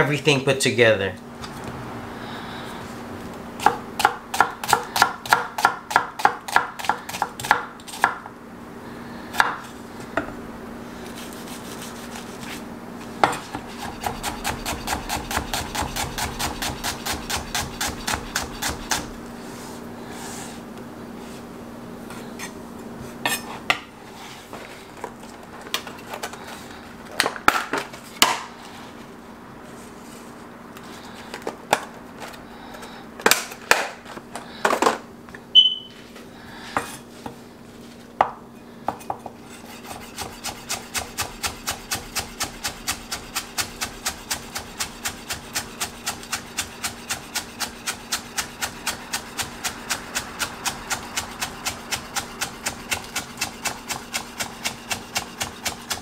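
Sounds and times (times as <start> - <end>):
knife chopping on wooden board: 3.6 - 8.2, 9.4 - 9.6, 13.2 - 19.1.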